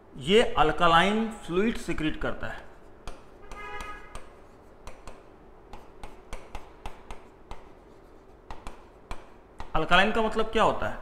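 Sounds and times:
pen writing on a board: 2.7 - 9.7.

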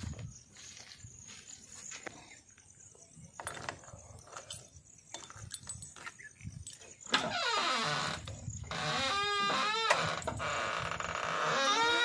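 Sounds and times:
door handle and latch rattling: 6.6 - 10.9
creak falling in pitch: 7.1 - 12.0.

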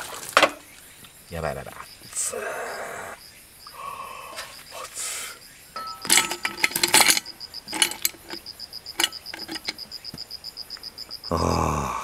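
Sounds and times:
insect chirping: 0.0 - 12.0
clinks and rattles in container: 5.8 - 9.8.

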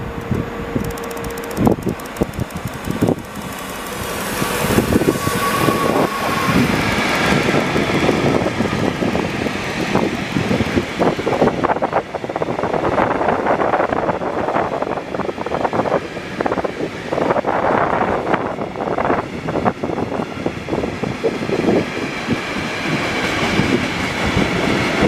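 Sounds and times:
locomotive whine: 0.0 - 14.0
freight train rumbling past: 0.0 - 25.0
wheels clattering over rail joints: 0.9 - 11.5.

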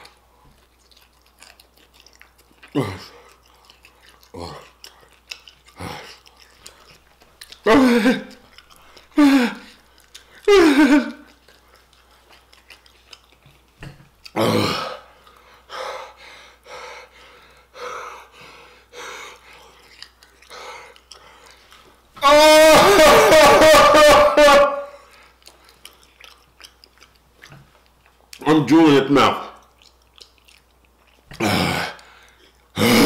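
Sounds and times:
man groaning: 7.7 - 8.3, 9.2 - 9.7, 22.2 - 25.0, 31.4 - 32.0, 32.8 - 33.0
man panting breathily: 14.7 - 19.8.

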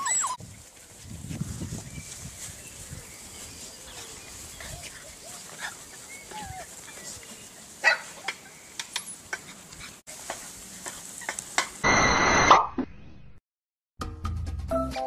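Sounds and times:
puppies yipping and whimpering: 0.0 - 0.4, 3.9 - 7.2
puppy yelping: 0.0 - 0.4.

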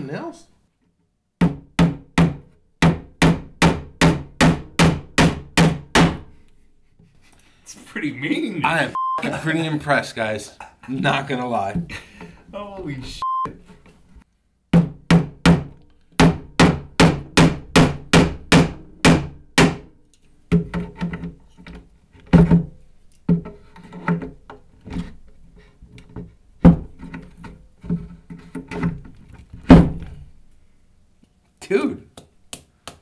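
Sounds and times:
hammer driving nails into wood: 1.4 - 6.3, 14.7 - 19.9.

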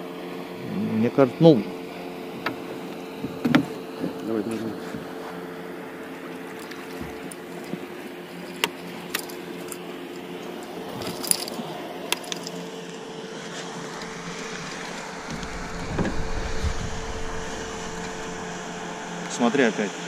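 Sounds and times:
outboard motor running: 0.0 - 20.0
low rumble: 13.8 - 20.0.

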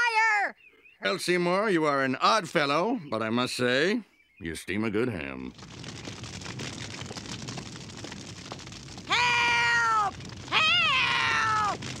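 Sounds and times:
faint fire crackling: 5.0 - 12.0.

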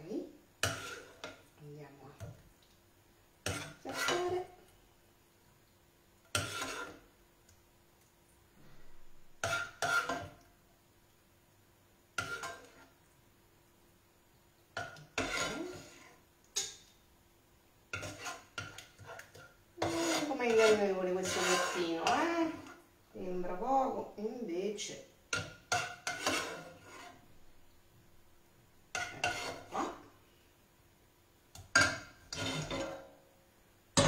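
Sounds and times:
utensil scraping a frying pan: 0.6 - 1.5, 3.4 - 4.6, 6.3 - 7.1, 8.6 - 10.4, 12.2 - 13.0, 14.8 - 16.8, 17.9 - 24.0, 25.3 - 27.4, 28.9 - 30.1, 31.6 - 33.1.

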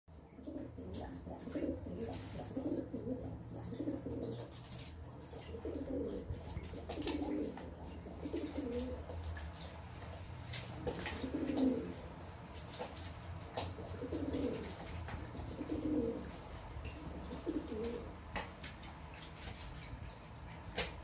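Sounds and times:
pigeon cooing: 0.3 - 9.2, 10.9 - 12.2, 13.7 - 18.3
water splashes: 0.6 - 21.0.

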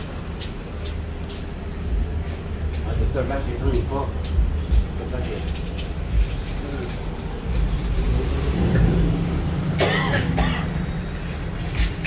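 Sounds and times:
street traffic rumble: 0.0 - 12.0
person coughing: 9.8 - 10.8.

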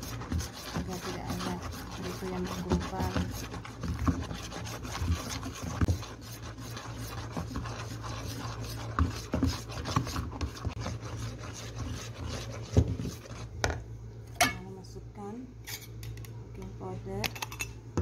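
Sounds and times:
whisk knocking against bowl: 0.0 - 13.8
whisk scraping mixing bowl: 0.0 - 13.8.

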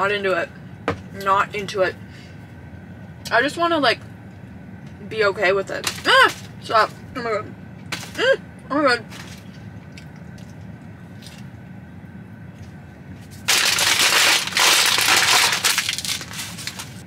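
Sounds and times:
low steady hum: 0.0 - 17.0
paper wrapper crinkling: 13.4 - 17.0.

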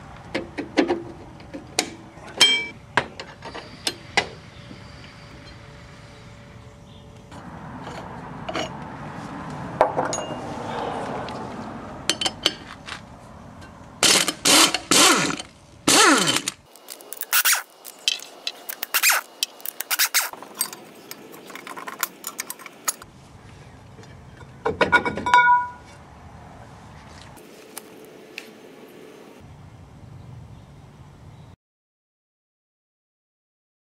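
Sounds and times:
metallic clinks and knocks: 10.0 - 10.4, 17.1 - 23.0.

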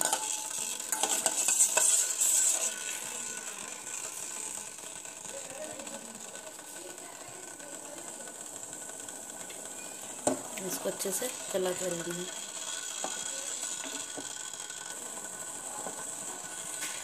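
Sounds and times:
metal spoon scraping a steel pan: 0.0 - 4.5
hiss of pan heating: 0.0 - 17.0.

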